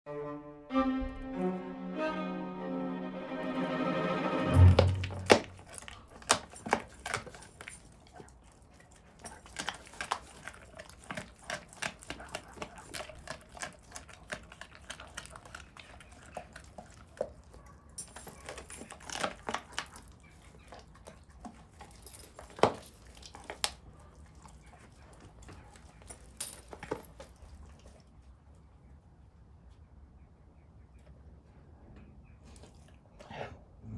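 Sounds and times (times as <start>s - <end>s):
metal chain collar clinking: 4.4s - 14.5s, 17.7s - 20.2s, 21.6s - 23.7s, 25.8s - 27.6s
dog chewing with wet crunching: 5.0s - 28.3s.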